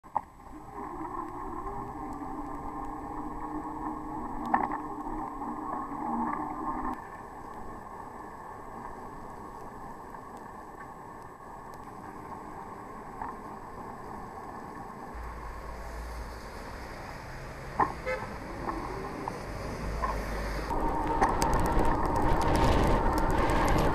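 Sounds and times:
dull steady rush: 0:00.4 - 0:23.9
muffled traffic noise: 0:15.2 - 0:23.9.

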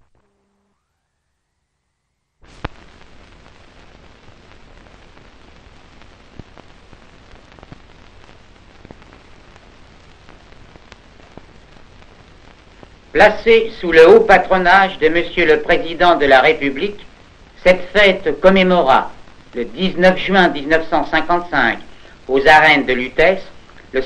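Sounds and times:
old film soundtrack hiss and crackle: 0:00.0 - 0:24.0
clicks and pops: 0:02.5 - 0:03.2, 0:08.7 - 0:13.0.

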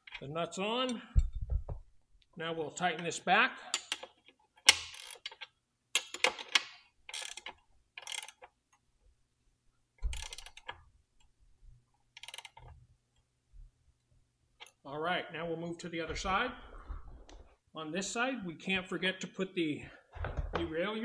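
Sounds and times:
ratchet wrench clicking: 0:04.7 - 0:06.5, 0:07.1 - 0:08.5, 0:10.0 - 0:10.7, 0:12.2 - 0:12.6.

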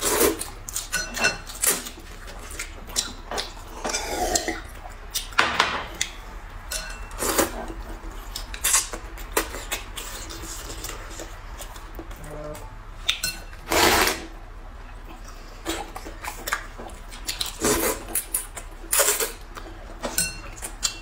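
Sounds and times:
noodles being slurped: 0:00.0 - 0:00.9, 0:13.6 - 0:14.3, 0:15.3 - 0:19.4
chopsticks clinking on bowls: 0:06.7 - 0:07.3, 0:20.0 - 0:21.0.

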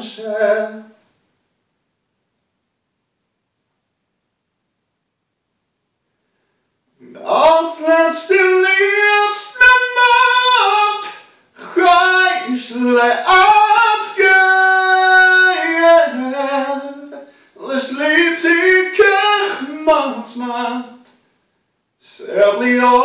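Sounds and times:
person singing unaccompanied: 0:00.0 - 0:01.0, 0:07.0 - 0:21.2, 0:22.0 - 0:23.0.

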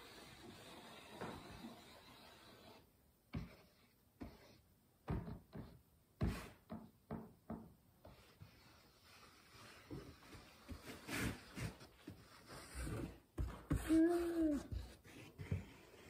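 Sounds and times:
wooden knocks and taps: 0:06.7 - 0:07.8.

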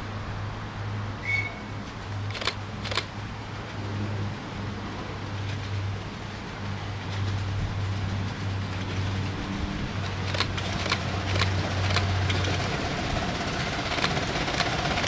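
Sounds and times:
miniature steam locomotive chuffing: 0:02.3 - 0:03.1, 0:05.6 - 0:15.0.

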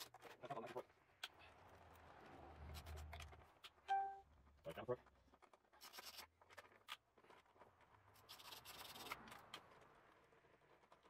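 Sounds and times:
faint scraping and rubbing: 0:04.6 - 0:11.0.

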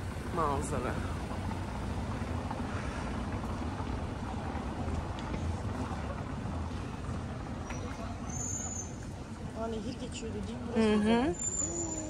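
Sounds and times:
outdoor street ambience: 0:00.0 - 0:12.0.

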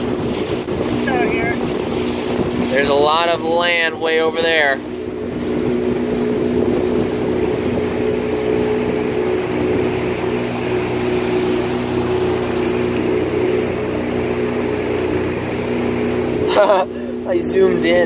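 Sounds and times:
wind noise: 0:00.0 - 0:11.6
motorboat engine running: 0:00.0 - 0:18.0
water rushing: 0:00.0 - 0:18.0.

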